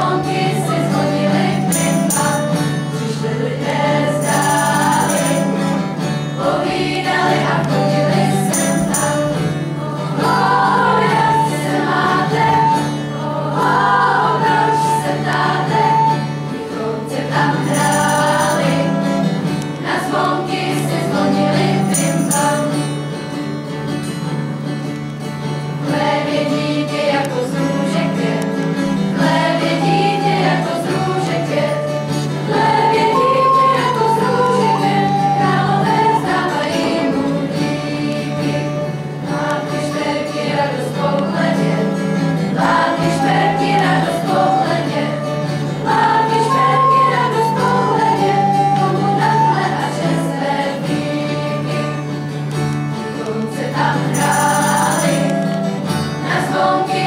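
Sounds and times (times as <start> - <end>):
recorder playing: 0.0 - 5.8, 6.4 - 22.7, 29.2 - 37.3, 42.6 - 52.2, 53.3 - 57.0
girls' choir singing: 0.0 - 23.0, 25.8 - 52.4, 53.0 - 57.0
acoustic guitar: 0.0 - 57.0.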